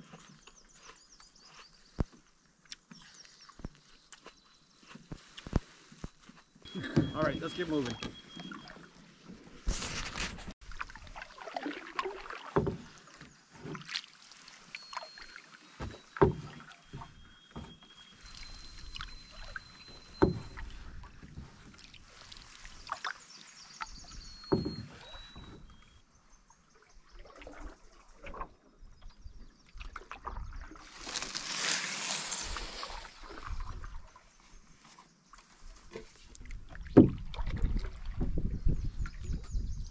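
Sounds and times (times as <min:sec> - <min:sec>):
paddle strokes through water: 0:00.0 - 0:39.9
swishing rush of water: 0:10.6 - 0:15.2
paddle knocking against canoe: 0:12.3 - 0:14.0, 0:15.7 - 0:21.8, 0:23.8 - 0:25.9, 0:35.9 - 0:39.5.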